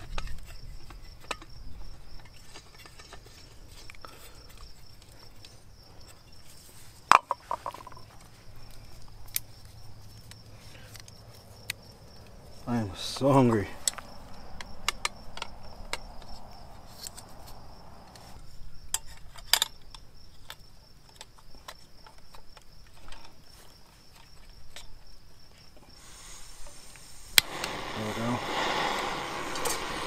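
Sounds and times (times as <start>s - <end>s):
crickets chirring: 0.0s - 30.0s
gas stove hissing: 26.0s - 30.0s.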